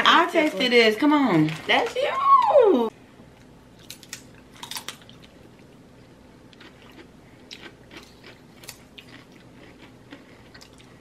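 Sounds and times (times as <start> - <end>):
people crunching crisp chips: 3.8 - 5.4, 6.6 - 11.0.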